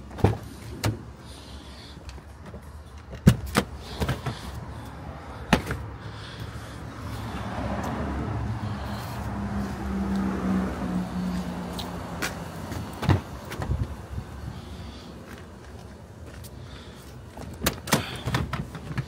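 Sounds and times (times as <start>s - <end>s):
low vehicle engine hum: 0.0s - 19.0s
seat latches clacking: 17.4s - 19.0s.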